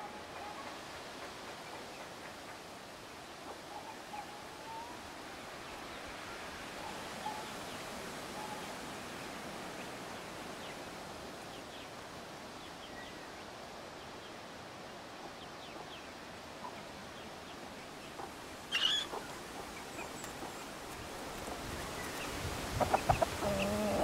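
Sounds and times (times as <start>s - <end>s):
small birds chirping: 15.4s - 24.0s.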